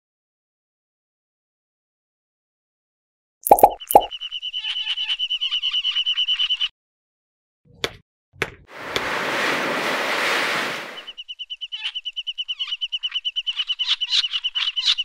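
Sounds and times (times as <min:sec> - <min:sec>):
rushing wave noise: 0:08.8 - 0:11.1.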